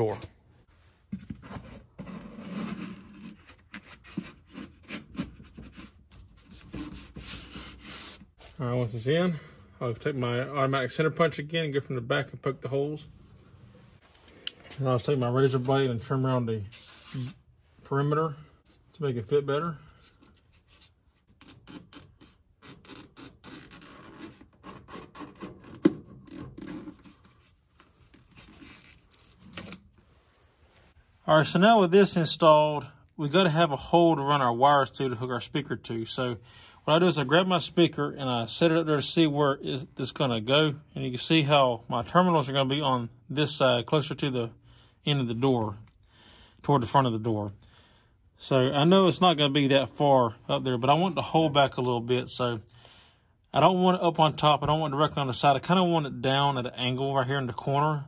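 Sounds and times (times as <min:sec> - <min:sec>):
foam rubbing and scuffing: 0:16.7 - 0:17.6
razor blade cutting foam: 0:21.4 - 0:26.9.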